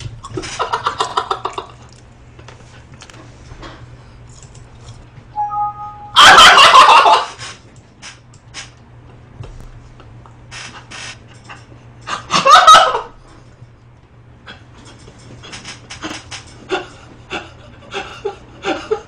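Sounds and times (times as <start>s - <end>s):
two-note electronic chime: 5.4s - 6.2s
man laughing loudly: 16.1s - 19.0s.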